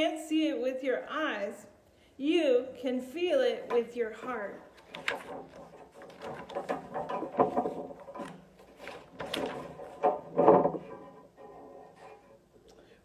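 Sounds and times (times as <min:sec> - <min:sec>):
irregular knocks and clatter: 0:04.7 - 0:12.4.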